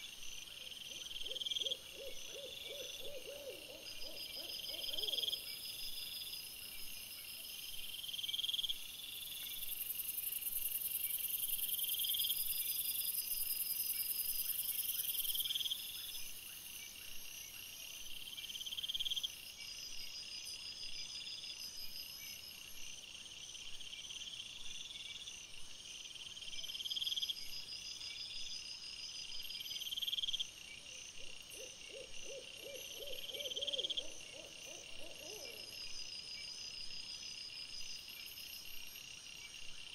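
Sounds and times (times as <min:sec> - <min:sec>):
insects trilling: 0:31.2 - 0:39.1.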